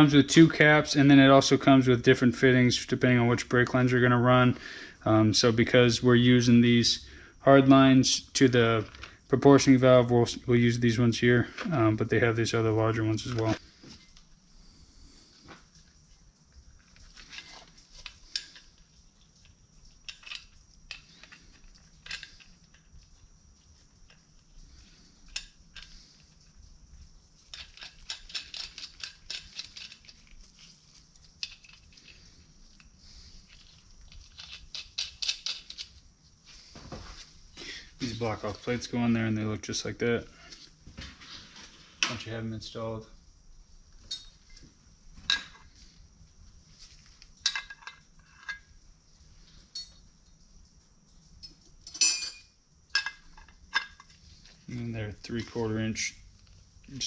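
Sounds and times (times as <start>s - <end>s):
small metal fittings clinking: 17.0s - 23.0s, 24.0s - 26.6s, 27.4s - 36.0s, 44.0s - 44.6s, 47.4s - 48.8s, 49.7s - 50.1s, 51.4s - 56.1s
small metal fittings clicking: 19.4s - 22.8s, 27.5s - 30.4s, 33.5s - 36.0s.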